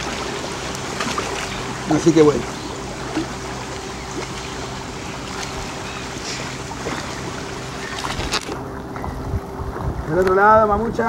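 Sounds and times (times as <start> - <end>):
low motor hum: 0.0 - 11.0
wind: 0.0 - 11.0.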